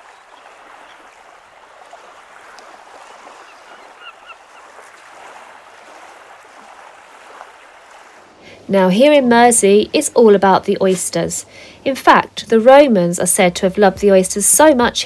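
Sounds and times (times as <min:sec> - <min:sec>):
gulls calling: 0:00.0 - 0:07.9
waves washing onto shingle: 0:00.0 - 0:08.5.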